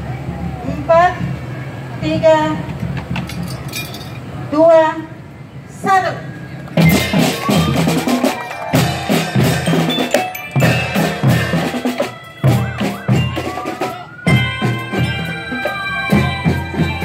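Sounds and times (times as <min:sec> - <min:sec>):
marching drums and bass drums: 0:00.0 - 0:03.6, 0:06.7 - 0:17.0
long rising and falling tone: 0:06.8 - 0:11.2
cymbals clashing: 0:06.8 - 0:17.0
glockenspiel ringing: 0:06.8 - 0:17.0
melodicas: 0:06.8 - 0:17.0.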